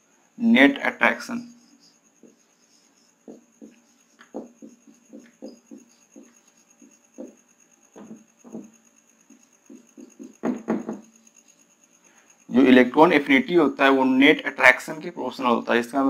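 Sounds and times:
marker writing on whiteboard: 0:01.7 - 0:11.6.

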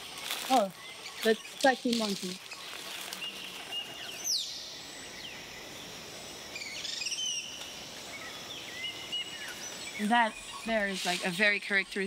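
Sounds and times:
birds chirping and whistling: 0:00.0 - 0:12.0
insect hiss: 0:00.0 - 0:12.0.

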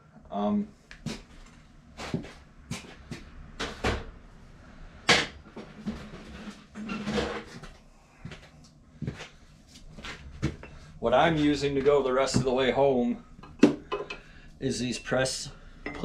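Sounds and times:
metal clunks and knocks: 0:13.4 - 0:14.3.

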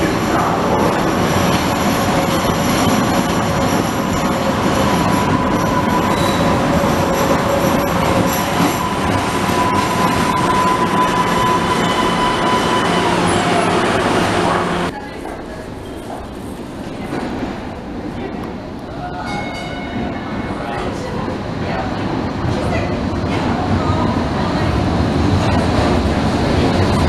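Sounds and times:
train wheels rumbling on rail: 0:00.0 - 0:27.0
high-pitched wheel squeal: 0:03.6 - 0:14.8.

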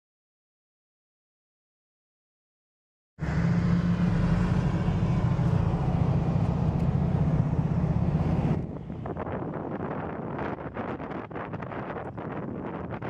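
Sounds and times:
car cabin road and engine noise: 0:03.2 - 0:12.3
wind gusting on microphone: 0:03.2 - 0:13.0.

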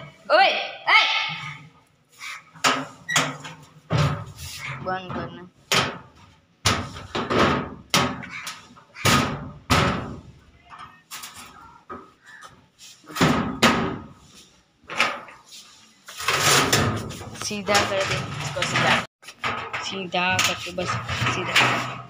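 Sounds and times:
loud knocks and bangs: 0:02.6 - 0:08.3, 0:09.0 - 0:10.4, 0:13.1 - 0:14.2.

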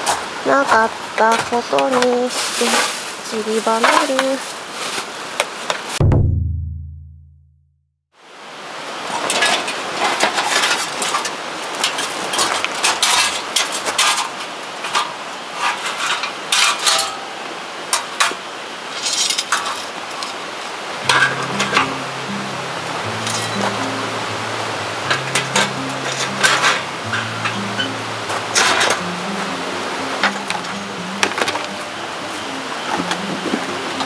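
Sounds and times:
steady background hiss: 0:00.0 - 0:06.0, 0:08.2 - 0:34.0
firewood clinking in metal fire pit: 0:09.2 - 0:20.4
music with low held notes: 0:21.0 - 0:34.0.

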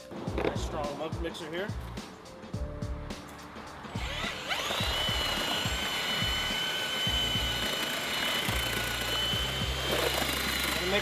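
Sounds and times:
paddle mixer whining: 0:04.0 - 0:11.0.

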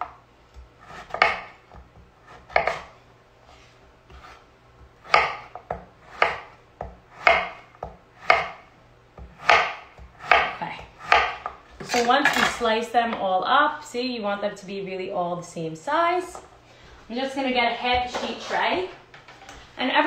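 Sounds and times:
knife slicing squash on wooden board: 0:00.5 - 0:12.1.

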